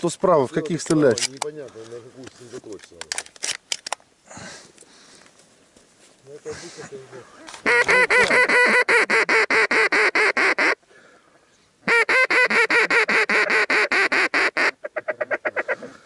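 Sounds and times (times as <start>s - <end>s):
duck call quacks: 7.6s - 10.8s, 11.8s - 16.0s.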